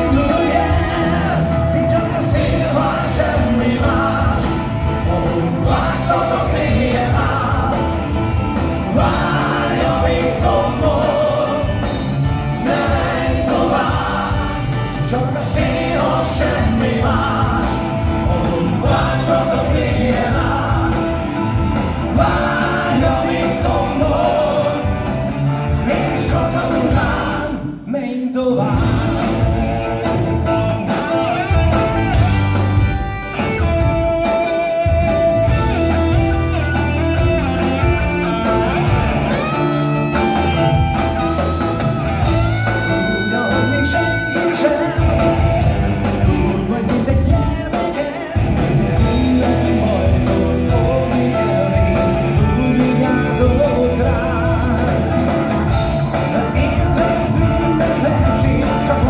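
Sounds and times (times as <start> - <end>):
live rock band playing: 0.0 - 27.9, 28.6 - 59.0
man singing: 0.0 - 30.2, 42.4 - 59.0.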